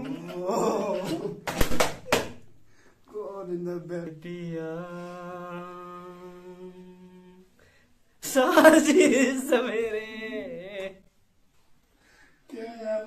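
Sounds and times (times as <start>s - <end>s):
hand slaps on a person: 1.4s - 2.4s
man humming a long note: 5.0s - 7.5s.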